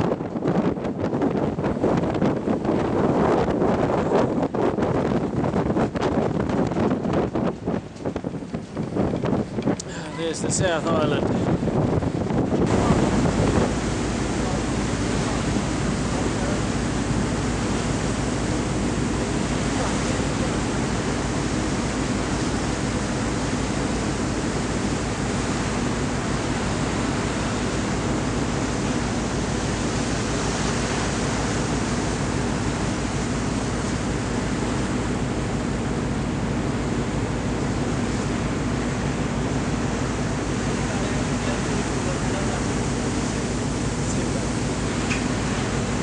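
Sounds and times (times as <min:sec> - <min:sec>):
wind rushing: 0:00.0 - 0:19.6
sea rushing: 0:00.0 - 0:46.0.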